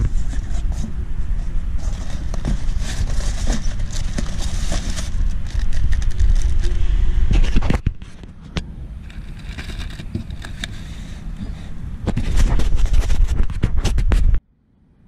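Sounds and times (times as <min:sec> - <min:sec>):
cardboard scraping: 0:00.0 - 0:14.4
plastic wrap crinkling: 0:01.8 - 0:06.8.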